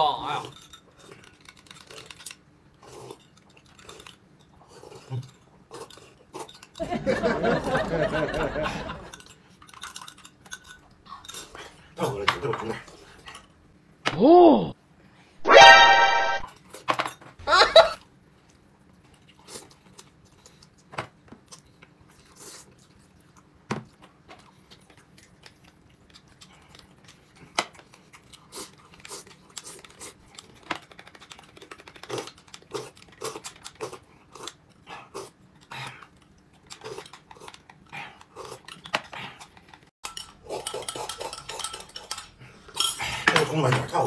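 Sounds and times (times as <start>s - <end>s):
chewing and crunching: 0.3s - 6.9s, 8.7s - 13.7s, 17.9s - 43.3s.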